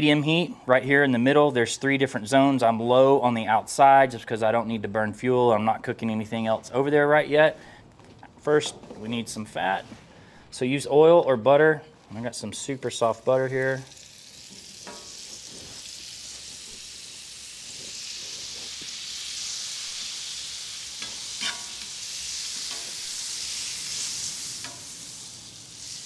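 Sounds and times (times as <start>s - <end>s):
butter sizzling on griddle: 12.6s - 26.0s
metal spatula clicking and scraping: 21.0s - 21.9s.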